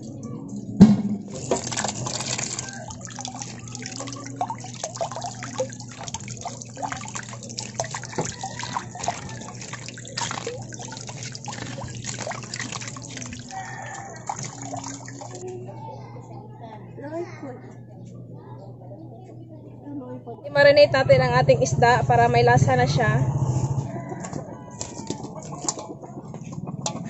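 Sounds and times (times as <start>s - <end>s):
tap water splashing: 0.8s - 15.4s, 24.2s - 25.8s
hands rubbing onion under water: 1.3s - 15.4s.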